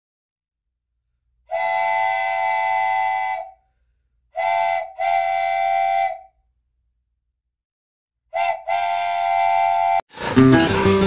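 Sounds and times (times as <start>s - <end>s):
whistle blasts: 1.5s - 3.6s, 4.3s - 6.4s, 8.3s - 10.0s.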